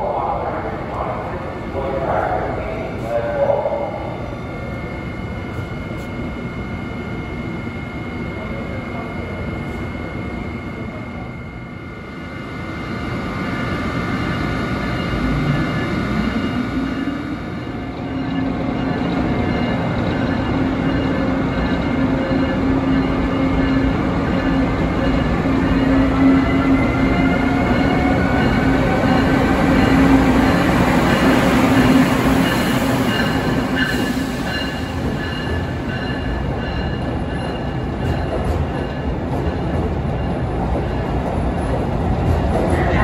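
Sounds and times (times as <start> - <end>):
train wheels rumbling on rails: 12.6 - 43.0.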